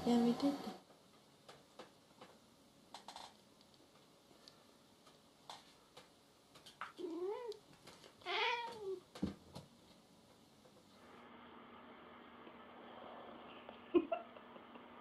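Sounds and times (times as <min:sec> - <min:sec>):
cat yowling: 0:08.2 - 0:09.0.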